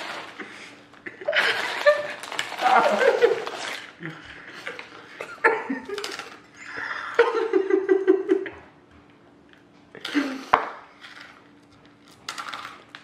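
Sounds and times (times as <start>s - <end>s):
man laughing: 1.0s - 8.7s.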